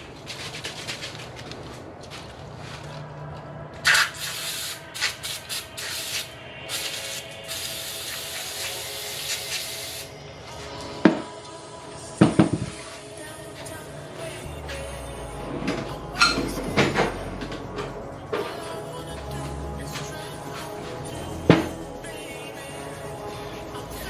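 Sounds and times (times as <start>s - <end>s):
spray can hissing: 3.8s - 10.1s.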